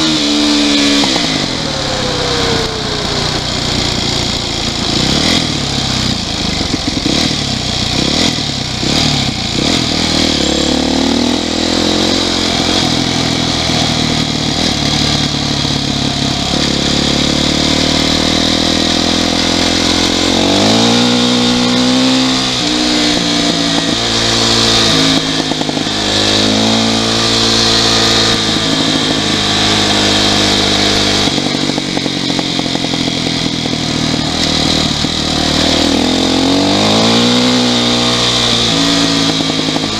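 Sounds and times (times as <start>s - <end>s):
motorcycle engine at speed: 0.0s - 39.9s.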